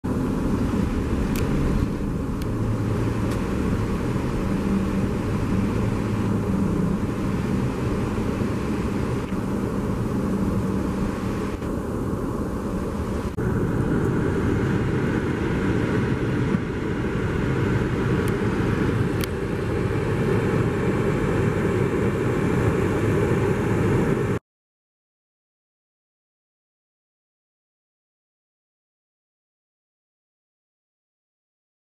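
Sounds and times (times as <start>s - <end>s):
car engine hum: 0.0s - 24.4s
rough rumble: 0.0s - 24.4s
traffic and road noise: 0.0s - 24.4s.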